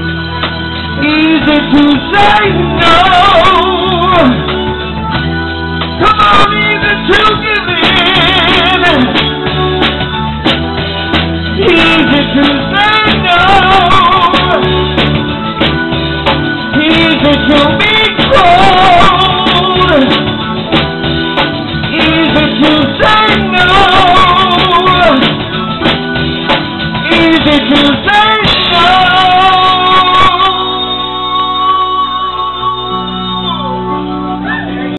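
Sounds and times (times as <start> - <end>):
bass guitar: 0.0 - 34.9
drums: 0.0 - 34.9
electric guitar: 0.0 - 34.9
man singing with vibrato: 1.0 - 4.6, 6.0 - 9.4, 11.6 - 14.8, 16.7 - 20.3, 21.8 - 25.4, 27.0 - 34.9.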